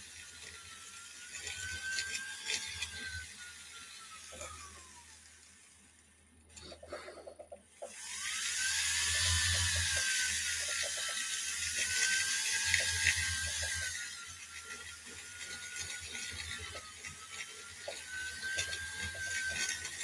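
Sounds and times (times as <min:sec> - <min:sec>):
rotary tool motor whine: 0:00.0 - 0:20.0
grinding hiss on metal: 0:06.5 - 0:20.0.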